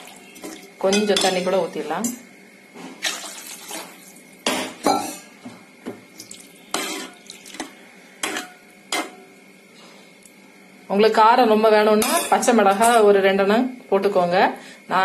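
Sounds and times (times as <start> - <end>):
liquid sloshing: 3.0 - 4.2
ladle knocking and scraping pot: 6.7 - 9.2.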